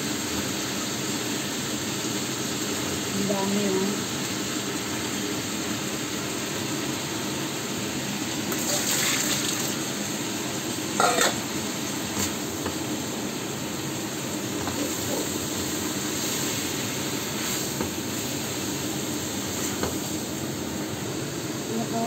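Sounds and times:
food sizzling in a wok: 0:00.0 - 0:22.0
spatula scraping a wok: 0:11.0 - 0:11.5, 0:12.1 - 0:12.4, 0:19.4 - 0:20.1.

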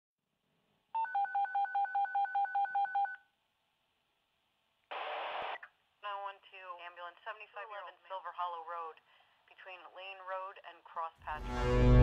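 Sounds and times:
telephone keypad beeps: 0:01.0 - 0:03.2.

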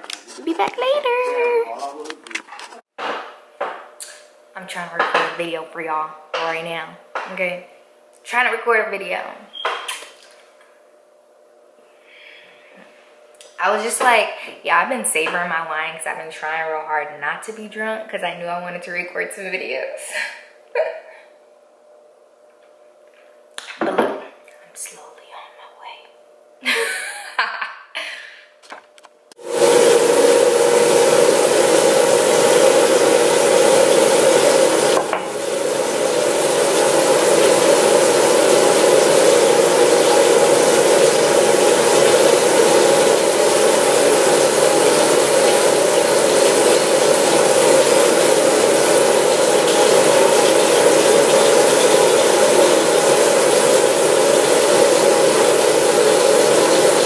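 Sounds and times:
tap running into a sink: 0:29.5 - 0:57.0.

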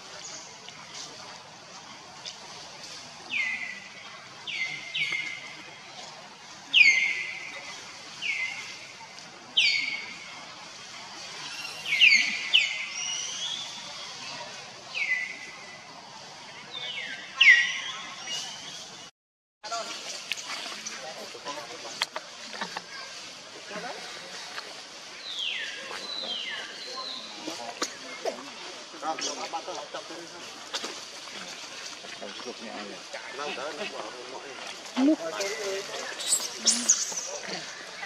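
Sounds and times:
outdoor background noise: 0:00.0 - 0:38.0.

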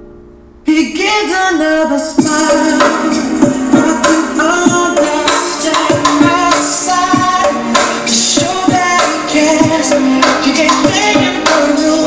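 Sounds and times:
pop song through speakers: 0:00.6 - 0:12.0.

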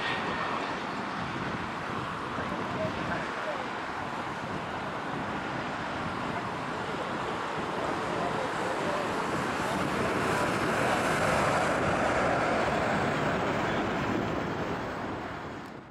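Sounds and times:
jet engines roaring: 0:00.0 - 0:15.9.

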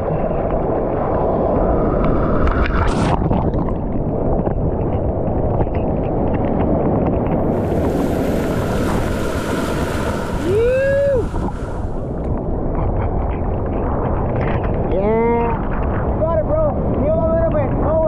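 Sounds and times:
rushing whitewater of a wave: 0:00.0 - 0:04.3, 0:07.1 - 0:12.9.

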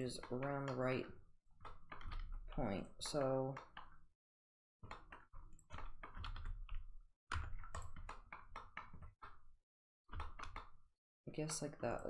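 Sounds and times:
keyboard and mouse clicking: 0:01.6 - 0:04.0, 0:04.8 - 0:09.5, 0:10.1 - 0:10.8.

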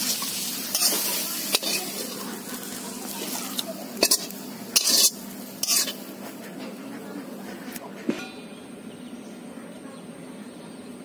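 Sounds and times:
light sizzle: 0:00.0 - 0:06.8
metal spatula scraping wok: 0:00.0 - 0:06.8.

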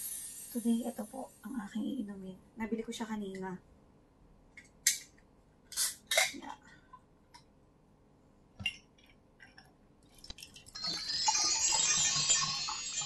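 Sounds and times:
glass and can clinking: 0:10.4 - 0:13.0.

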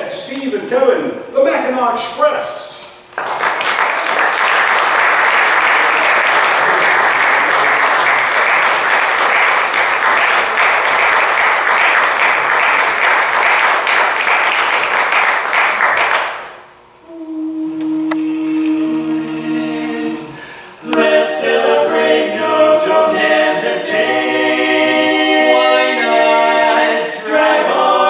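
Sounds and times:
audience applauding: 0:03.1 - 0:16.6
men singing a cappella chord: 0:17.1 - 0:28.0.

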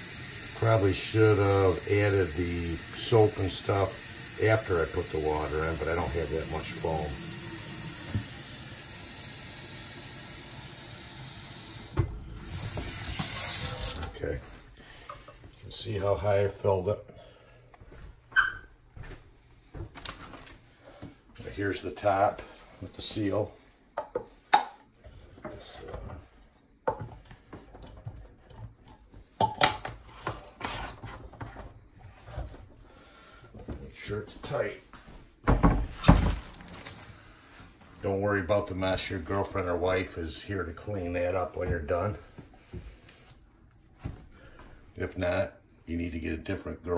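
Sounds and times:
faucet water running into sink: 0:00.0 - 0:14.2.

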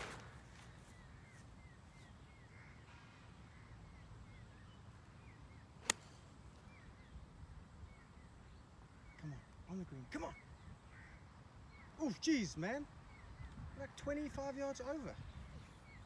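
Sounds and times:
golf club striking ball: 0:05.8 - 0:06.2.

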